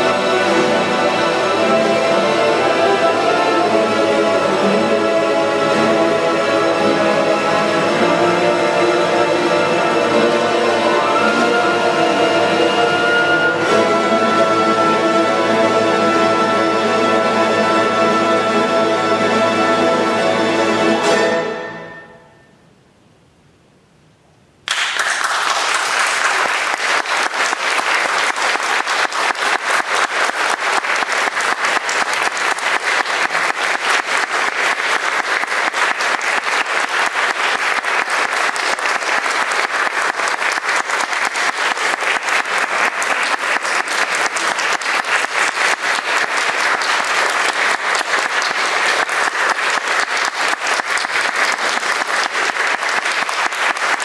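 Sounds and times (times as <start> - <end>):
audience applause: 24.7 - 54.0.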